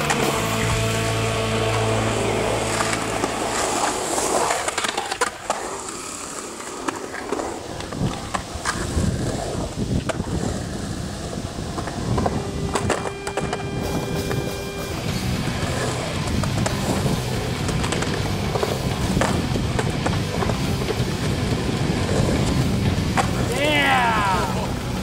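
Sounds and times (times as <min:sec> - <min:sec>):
skateboard wheels rolling on concrete: 0:00.0 - 0:25.0
skateboard clacks and knocks: 0:02.6 - 0:13.7, 0:15.6 - 0:23.6.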